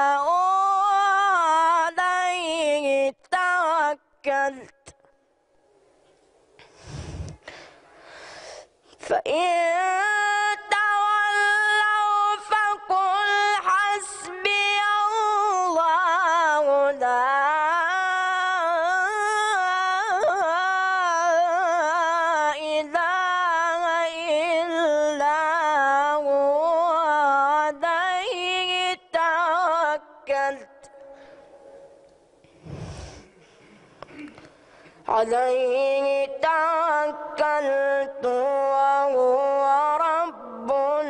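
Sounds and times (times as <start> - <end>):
boy chanting recitation: 0.0 - 5.0, 9.0 - 31.0, 35.0 - 41.0.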